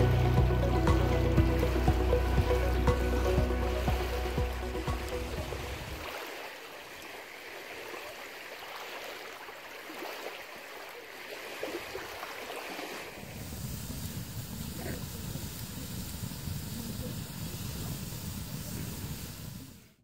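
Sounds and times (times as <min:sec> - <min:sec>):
low rumble: 0:00.0 - 0:06.0
waves lapping on stony shore: 0:00.0 - 0:20.0.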